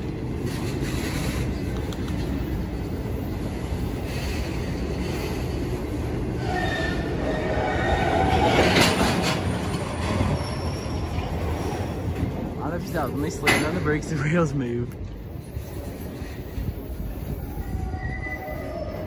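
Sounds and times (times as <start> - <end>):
steel wheels rumbling on rail: 0.0 - 19.0
wheel squeal: 6.4 - 11.7, 17.2 - 19.0.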